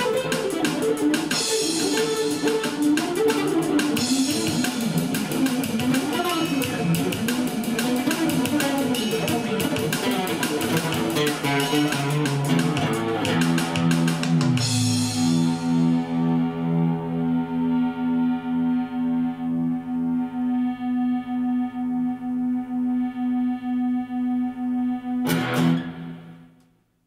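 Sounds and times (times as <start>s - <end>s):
funk guitar through effects: 0.0s - 23.1s, 24.5s - 26.5s
pulsing held guitar notes: 0.0s - 26.6s.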